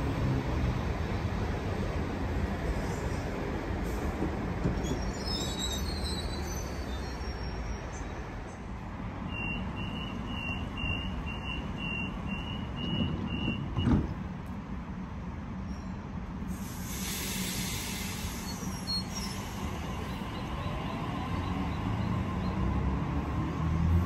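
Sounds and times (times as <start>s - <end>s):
train rumble: 0.0s - 24.0s
brief high squeal: 4.8s - 8.0s, 17.6s - 19.6s.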